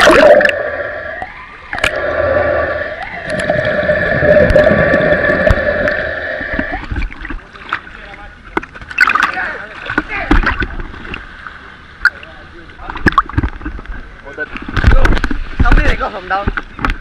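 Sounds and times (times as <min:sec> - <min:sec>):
muffled underwater hum: 0:00.0 - 0:07.6
bubble clicks: 0:01.2 - 0:02.0, 0:13.0 - 0:13.6.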